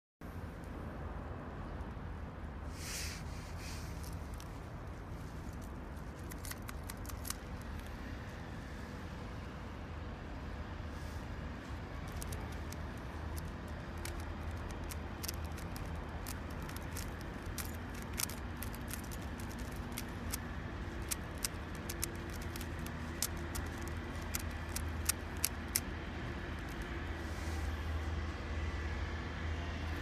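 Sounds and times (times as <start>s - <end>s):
puzzle cube layers clicking: 21.0s - 25.8s.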